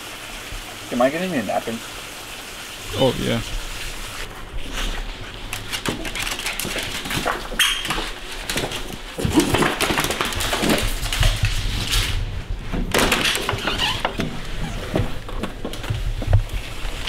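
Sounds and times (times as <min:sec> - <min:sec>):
dog claws on hardwood floor: 0:05.3 - 0:16.5.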